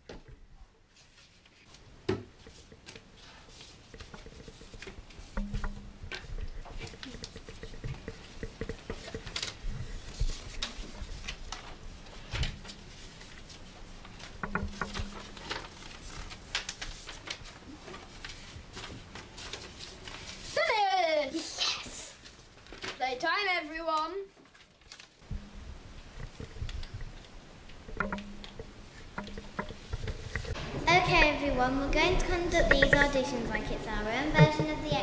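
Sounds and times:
light taps and clicks: 2.4 - 11.8, 27.8 - 30.6, 32.5 - 33.2.

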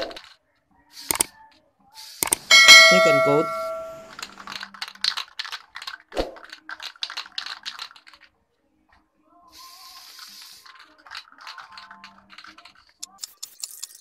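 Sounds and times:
spray paint hissing: 2.0 - 2.5, 9.6 - 10.8
spray can rattling: 6.7 - 8.2, 9.6 - 14.0.

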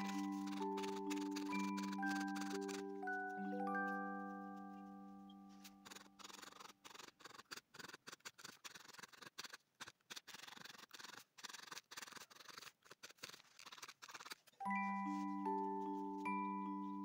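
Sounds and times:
felting needle stabbing wool: 0.0 - 3.1, 5.5 - 14.5.

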